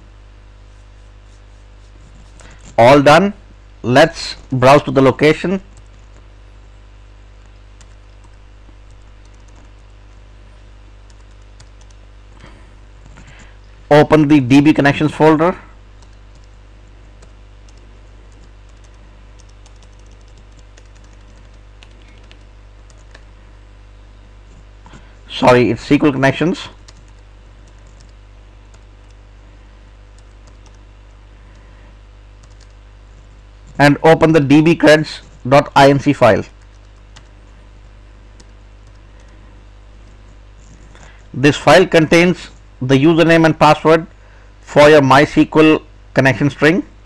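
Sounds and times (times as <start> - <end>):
keyboard typing: 5.7 - 6.3, 7.8 - 10.2, 11.0 - 12.0, 16.0 - 23.3, 26.8 - 29.2, 30.1 - 30.9, 32.4 - 33.8, 36.6 - 37.4, 38.4 - 39.4.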